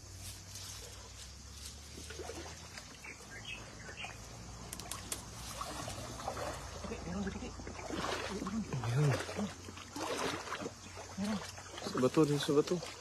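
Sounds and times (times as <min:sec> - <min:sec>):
grass rustling: 0:00.0 - 0:13.0
stream water trickling: 0:00.0 - 0:13.0
splashes: 0:00.4 - 0:13.0.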